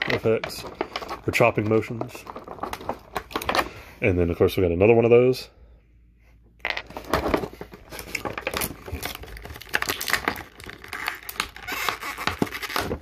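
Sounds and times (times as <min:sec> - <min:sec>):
plastic blister tray crinkling: 0:00.0 - 0:03.7, 0:06.8 - 0:13.0.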